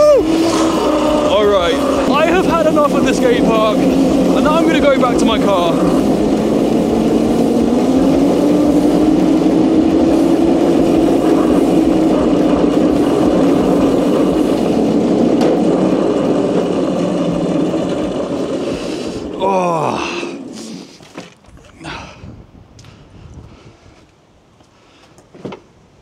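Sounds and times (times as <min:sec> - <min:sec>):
electric kart motor whining: 0:00.0 - 0:21.6
wheels rumbling on ground: 0:00.0 - 0:24.2.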